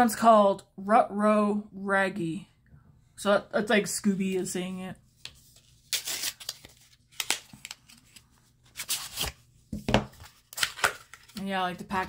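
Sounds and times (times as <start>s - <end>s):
cardboard packaging rustling: 5.3s - 12.0s.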